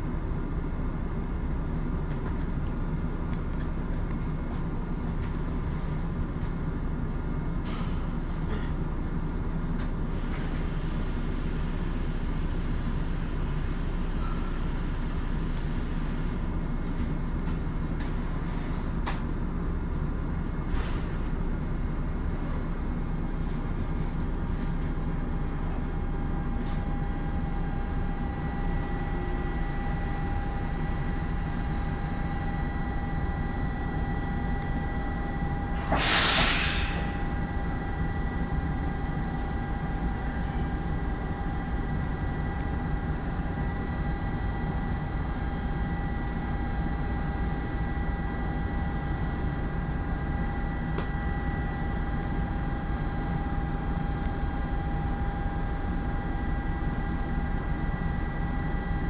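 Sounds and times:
subway train rumble: 0:00.0 - 0:59.0
air release hiss: 0:35.8 - 0:37.1.

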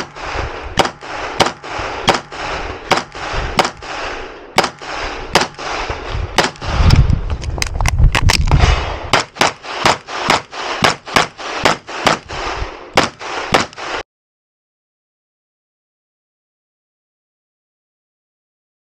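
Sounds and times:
rapid pistol shots with echo: 0:00.0 - 0:06.9, 0:08.7 - 0:14.0
low rumble: 0:00.1 - 0:09.2.

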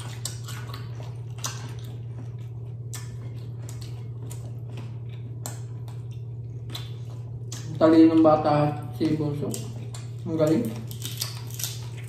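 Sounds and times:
steady low hum: 0:00.0 - 0:12.0
crunching fried chicken skin: 0:09.4 - 0:12.0.

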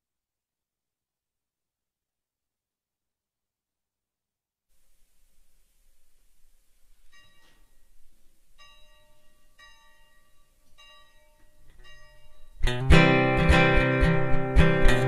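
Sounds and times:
strummed acoustic guitar: 0:11.7 - 0:15.0.

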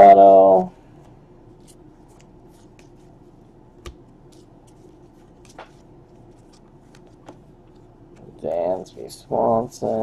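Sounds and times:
cards sliding against cards: 0:01.0 - 0:03.2, 0:03.8 - 0:08.8.

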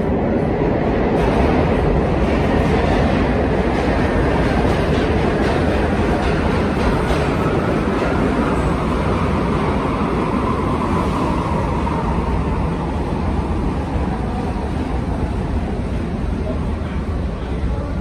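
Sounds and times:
subway train rumble: 0:00.0 - 0:18.0.

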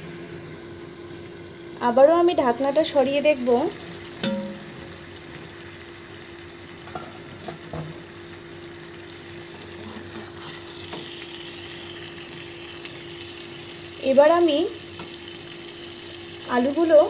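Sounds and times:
meat sizzling in a pan: 0:00.0 - 0:17.0.

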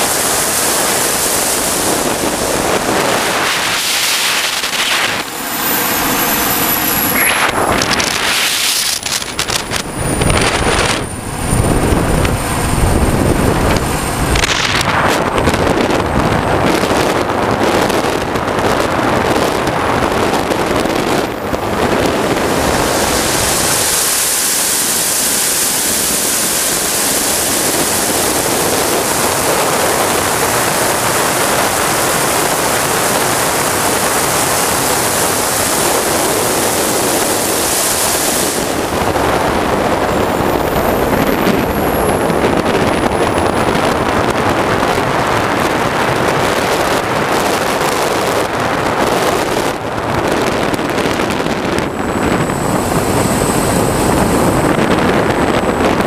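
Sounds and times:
thin high whine falling: 0:00.0 - 0:16.1
model jet turbine engine running: 0:00.0 - 0:56.0
wind on microphone: 0:00.0 - 0:56.0.

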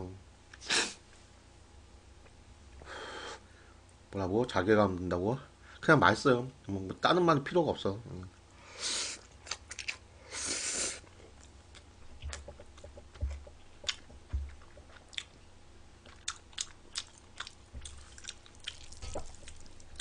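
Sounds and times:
chewing: 0:09.2 - 0:10.0, 0:11.0 - 0:15.4, 0:16.0 - 0:20.0.

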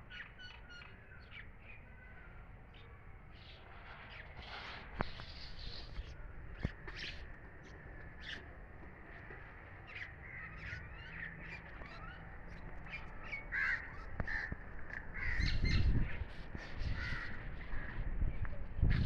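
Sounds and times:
crows cawing: 0:13.5 - 0:15.7, 0:16.9 - 0:18.0.

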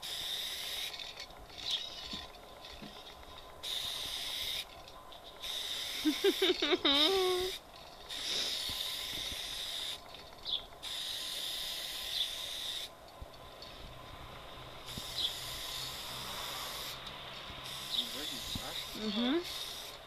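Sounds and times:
spray paint can hissing: 0:00.0 - 0:02.2, 0:03.6 - 0:04.8, 0:05.4 - 0:10.0, 0:10.8 - 0:12.9, 0:14.5 - 0:20.0.

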